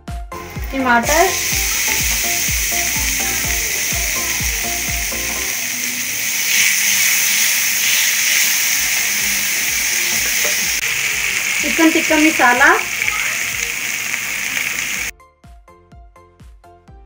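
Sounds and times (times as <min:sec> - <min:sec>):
background music with a beat: 0:00.0 - 0:05.9, 0:15.1 - 0:17.0
food sizzling in hot oil: 0:00.4 - 0:15.1.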